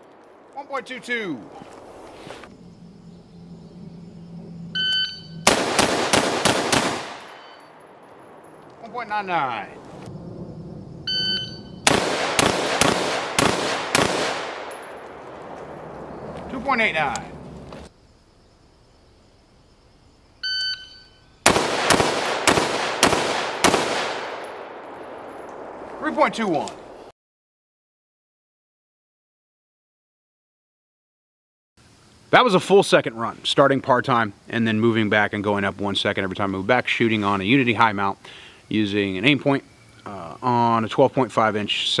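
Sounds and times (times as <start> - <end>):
range echo: 0.0 - 1.8, 3.4 - 17.6, 21.4 - 27.1
shot timer beep: 4.8 - 5.4, 11.1 - 11.8
rifle shots cracking: 5.4 - 9.1, 11.5 - 17.4, 21.4 - 27.0.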